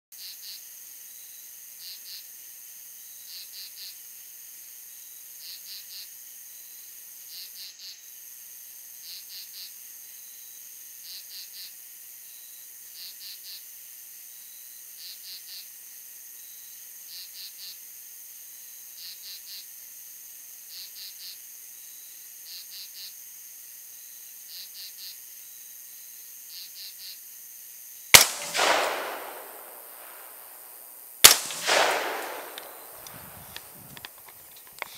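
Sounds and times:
crickets chirping: 15.9s - 34.9s
rifle shot with echo: 28.1s - 33.8s
steady high hiss: 28.2s - 34.9s.

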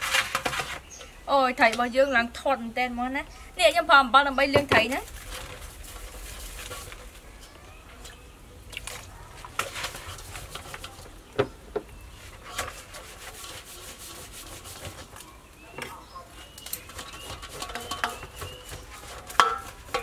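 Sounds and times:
hands scrubbing fish in bowl: 4.6s - 11.3s, 12.1s - 20.0s
knocks against metal bowl: 19.3s - 20.0s.

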